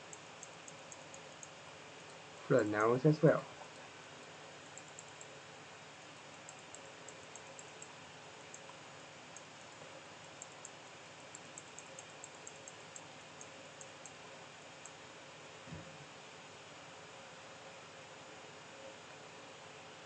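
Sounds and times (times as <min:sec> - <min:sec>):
computer mouse clicking: 0:00.0 - 0:02.2, 0:04.6 - 0:05.3, 0:06.3 - 0:14.2.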